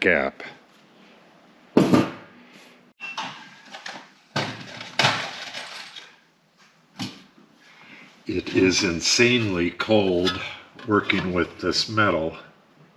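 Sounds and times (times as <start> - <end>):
sharp knocks on metal: 1.8 - 2.2
metal plate and tools handled: 4.6 - 6.1.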